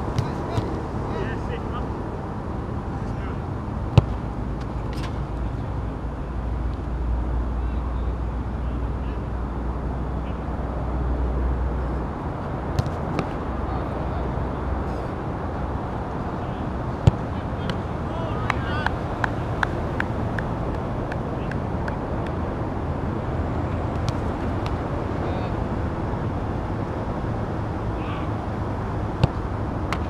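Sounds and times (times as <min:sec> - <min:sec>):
outdoor background rumble: 0:00.0 - 0:30.0
distant shouts: 0:16.3 - 0:22.0, 0:27.9 - 0:28.4.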